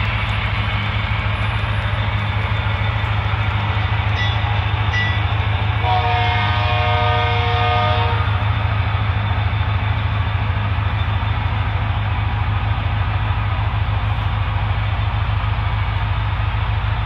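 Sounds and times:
deep diesel engine rumble: 0.0 - 17.0
multi-note train horn: 5.8 - 8.5.

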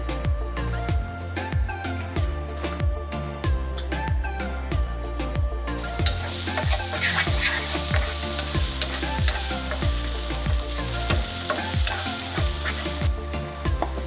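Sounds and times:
onion sizzling in hot oil: 5.8 - 13.8
wooden spatula scraping pan: 5.9 - 9.9, 10.9 - 13.1.

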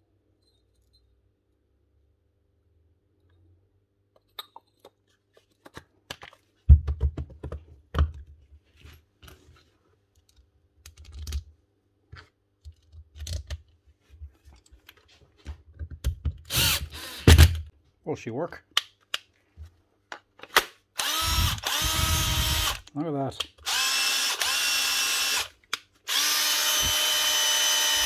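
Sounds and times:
cordless drill driving screw: 16.5 - 17.5, 21.0 - 22.9, 23.6 - 25.5, 26.1 - 28.0.

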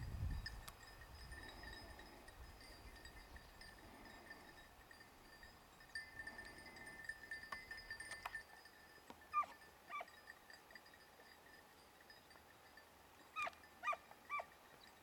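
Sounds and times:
distant dog yelping: 9.3 - 10.1, 13.4 - 14.5.

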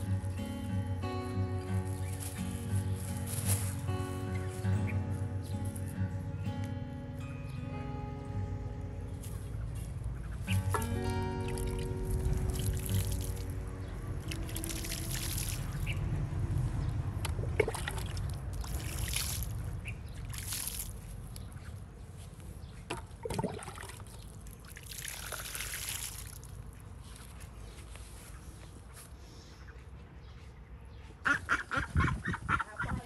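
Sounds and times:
water trickling onto dry soil: 0.0 - 6.0, 9.1 - 28.4.

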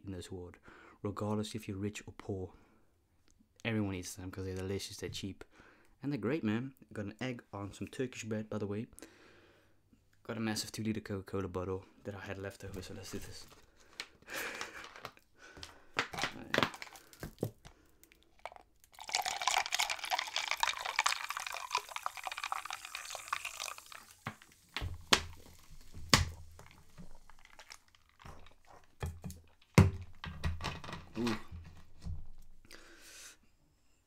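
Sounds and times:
fizzy drink pouring into mug: 18.4 - 28.9.

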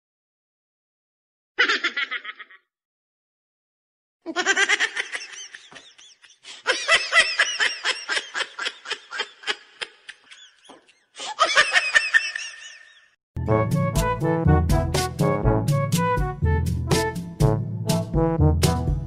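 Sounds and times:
person laughing high-pitched: 1.6 - 2.7, 4.3 - 13.1.

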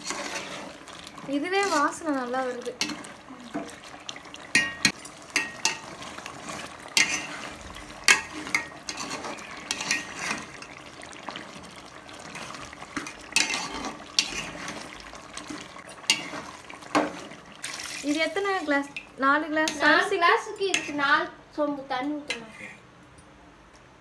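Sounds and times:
spoon scraping a metal pot: 0.0 - 0.8, 1.4 - 2.1, 4.5 - 10.8, 13.0 - 14.8, 22.3 - 22.8
wet stirring of gravy: 0.0 - 21.1.

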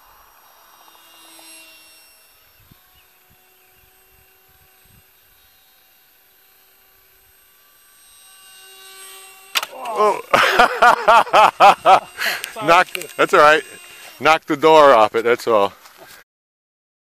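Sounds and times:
model airplane motor whine: 0.0 - 16.2.

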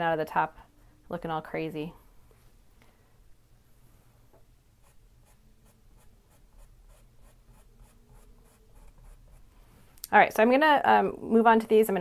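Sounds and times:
paintbrush scratching on canvas: 4.8 - 9.8.

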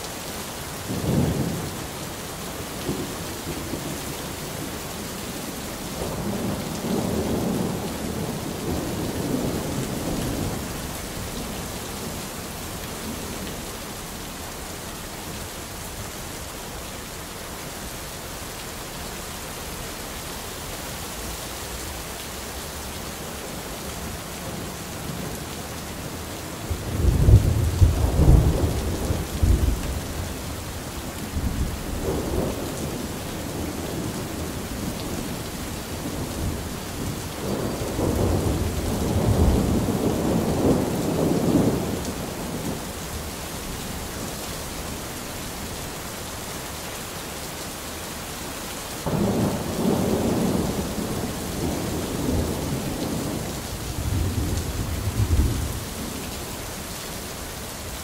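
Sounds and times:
rain hissing: 0.0 - 58.0.

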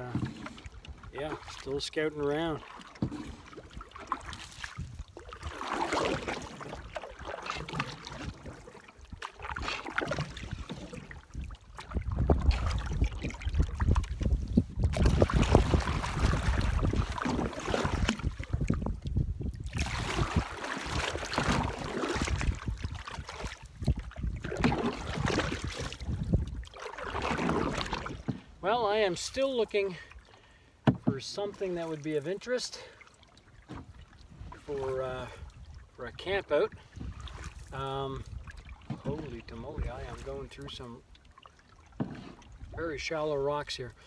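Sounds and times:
paddle strokes swishing in water: 0.0 - 44.0
wind buffeting microphone: 4.6 - 5.5, 10.4 - 28.2, 35.2 - 40.4.

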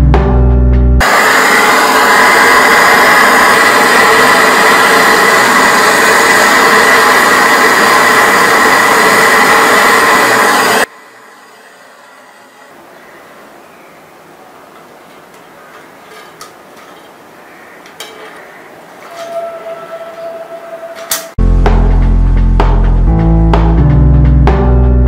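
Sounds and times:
gas torch flame hissing: 1.0 - 12.9, 14.7 - 21.4.

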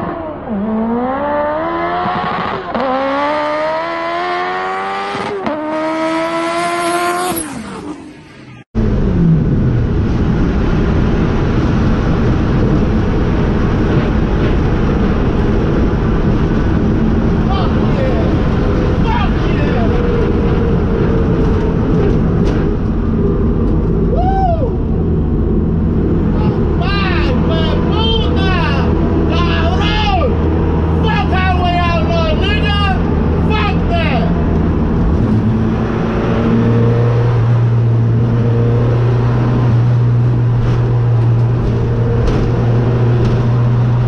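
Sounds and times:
car engine and road noise: 0.0 - 44.0
person shouting: 24.1 - 24.8.

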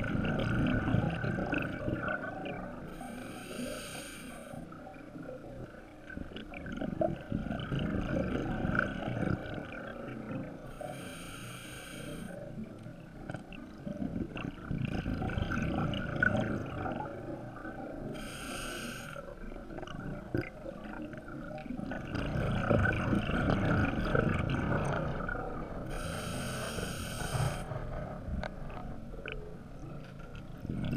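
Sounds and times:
gurgling exhaled bubbles: 0.0 - 2.9, 6.4 - 10.7, 13.2 - 18.2, 19.4 - 28.4, 30.5 - 30.9
hissing breath through regulator: 2.9 - 4.6, 10.7 - 12.4, 18.1 - 19.2, 25.9 - 27.7.

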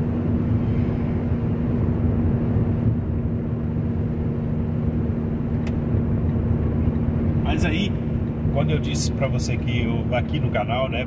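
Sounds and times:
car road and engine noise: 0.0 - 11.0.

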